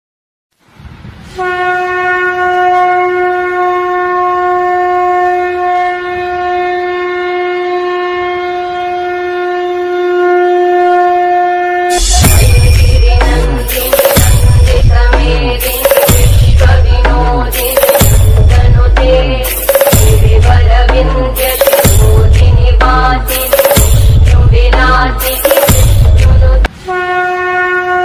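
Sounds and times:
conch shell blown: 1.4s - 16.2s, 25.2s - 28.0s
loud music with heavy bass: 11.9s - 26.7s.

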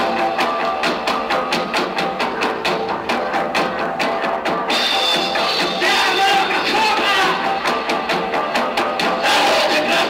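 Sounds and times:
punk rock band playing live: 0.0s - 10.0s
shouted vocals: 5.8s - 7.6s, 9.2s - 10.0s.

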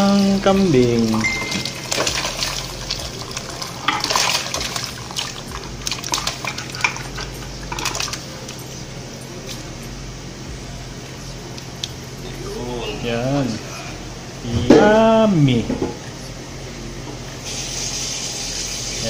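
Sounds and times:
pot and bones clattering: 0.9s - 8.2s
liquid splashing into pot: 1.3s - 8.2s.

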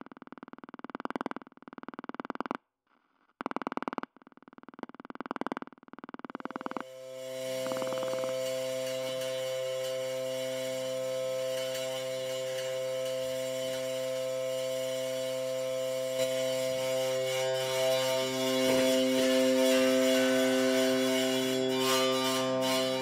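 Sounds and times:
electronic drone music: 6.4s - 23.0s.

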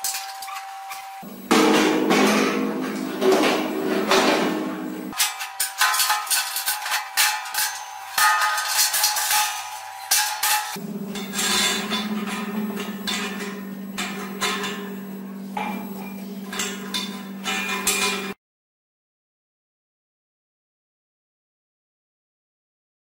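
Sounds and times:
steady low hum: 1.2s - 5.2s, 7.5s - 18.4s
metal drum knocking and clanking: 1.3s - 5.2s, 10.1s - 18.4s.

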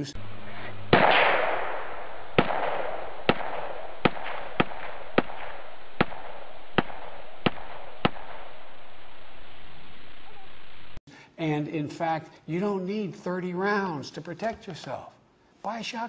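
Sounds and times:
steady hiss: 0.0s - 11.5s
gunshots: 0.9s - 9.0s.

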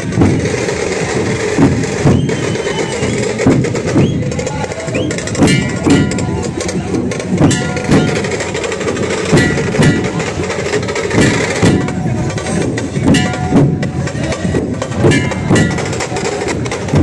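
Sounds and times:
barrel drums pounding: 0.0s - 17.0s.

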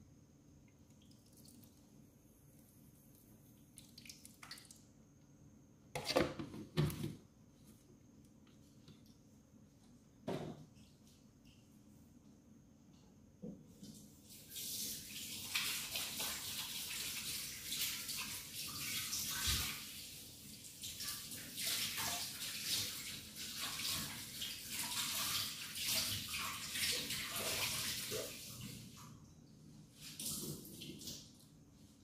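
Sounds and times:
water running and splashing: 14.3s - 29.1s.

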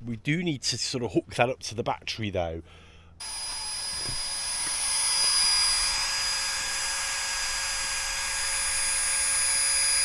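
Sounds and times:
electric air pump whining: 3.2s - 10.0s.

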